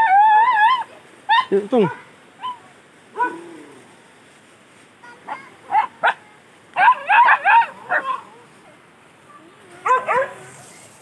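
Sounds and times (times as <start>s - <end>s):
dog barking: 6.8s - 8.2s, 9.8s - 10.5s.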